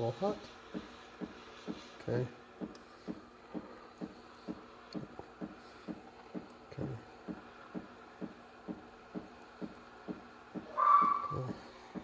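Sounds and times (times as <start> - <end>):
espresso machine pump thumping: 7.3 - 12.0.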